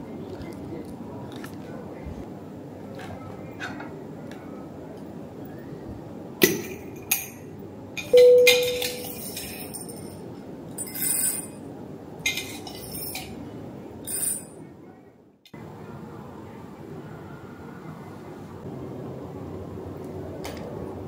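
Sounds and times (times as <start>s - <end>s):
utensils and cups clinking: 8.0s - 10.2s
ringing clink of glass: 8.1s - 9.7s.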